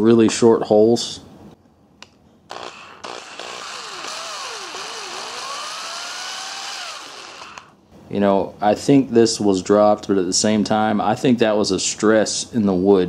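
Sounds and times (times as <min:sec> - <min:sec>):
electric drill drilling wood: 0:02.5 - 0:07.8.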